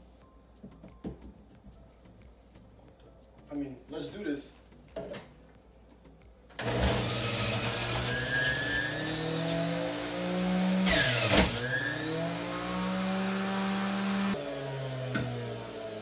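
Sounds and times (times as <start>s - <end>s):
juicer motor running: 6.6s - 16.0s.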